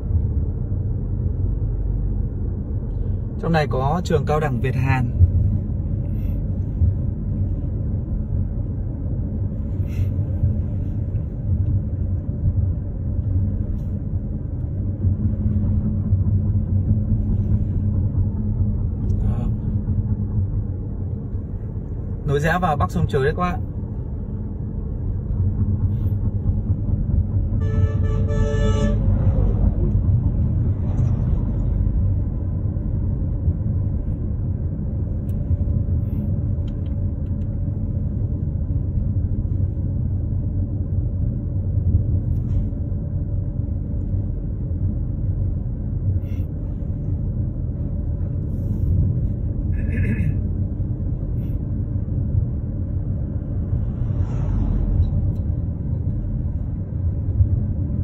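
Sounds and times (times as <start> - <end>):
road and engine rumble in car: 0.0 - 58.0
vehicle horn: 27.6 - 29.2.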